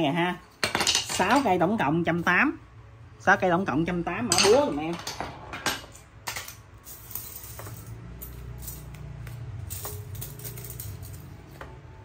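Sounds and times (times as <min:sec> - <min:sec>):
metal tools clinking: 0:00.4 - 0:01.6, 0:04.1 - 0:12.0.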